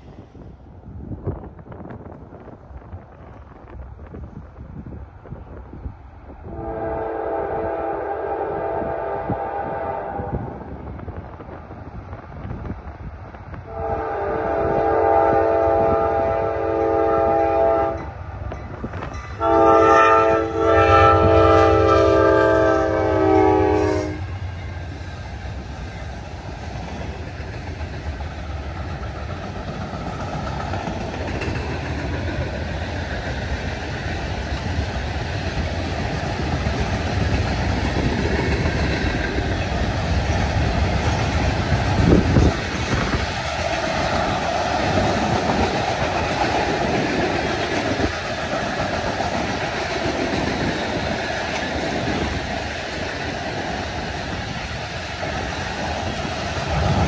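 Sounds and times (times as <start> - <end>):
freight train rumbling: 0.0 - 57.0
locomotive air horn blasts: 6.5 - 10.6, 13.7 - 18.1, 19.4 - 24.4.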